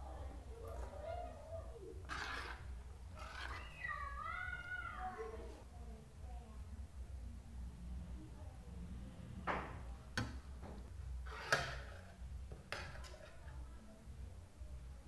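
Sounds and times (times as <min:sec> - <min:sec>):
fork scraping ceramic plate: 0:02.0 - 0:03.8, 0:11.2 - 0:13.4.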